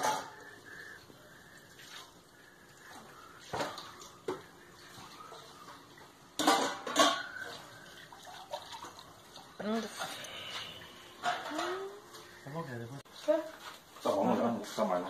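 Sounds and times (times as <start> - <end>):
dishes and cutlery clinking: 6.4 - 7.7, 9.9 - 12.0.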